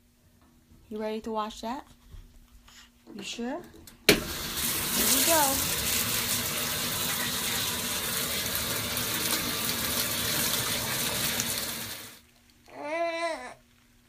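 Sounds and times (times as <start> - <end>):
water gushing into washing machine: 4.1 - 12.2
toddler vocal sound: 12.7 - 13.6.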